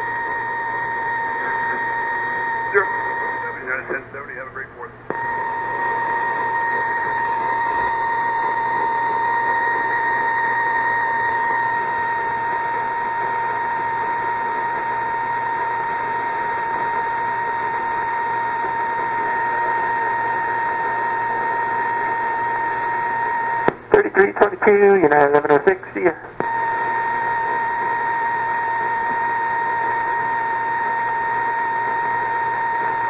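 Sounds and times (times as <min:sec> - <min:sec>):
radio whistle tone: 0:00.0 - 0:04.5, 0:05.1 - 0:33.0
radio static hiss: 0:00.2 - 0:33.0.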